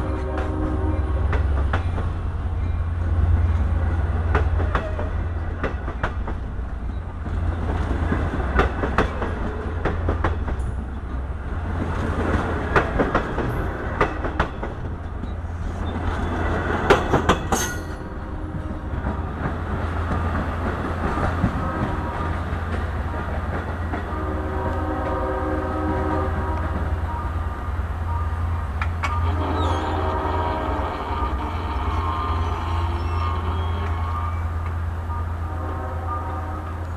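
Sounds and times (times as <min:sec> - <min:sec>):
multi-note train horn: 0:00.0 - 0:01.5, 0:18.2 - 0:19.3, 0:21.1 - 0:36.9
train wheels clacking over rail joints: 0:11.8 - 0:18.0.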